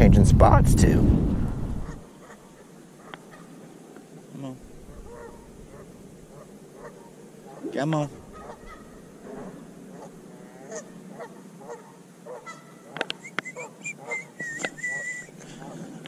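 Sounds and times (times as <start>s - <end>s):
geese honking: 1.8s - 3.8s, 4.8s - 15.9s
thin high whistle-like tone: 13.2s - 15.4s.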